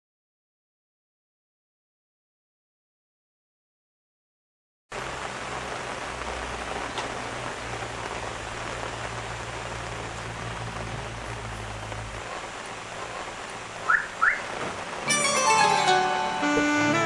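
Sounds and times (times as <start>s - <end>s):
steady rain: 4.9s - 17.0s.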